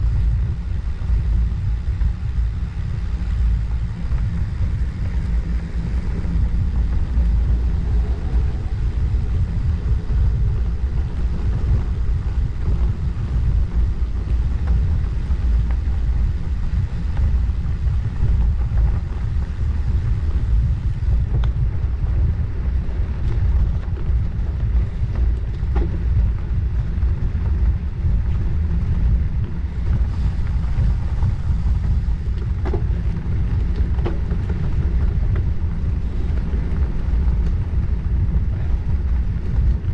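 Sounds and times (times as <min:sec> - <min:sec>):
bicycle tyres rolling on road: 0:00.0 - 0:39.9
wind rumble on microphone: 0:00.0 - 0:39.9.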